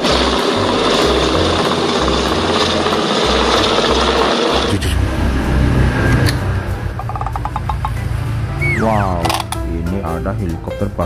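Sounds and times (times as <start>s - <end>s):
helicopter rotor and turbine: 0.0s - 6.0s.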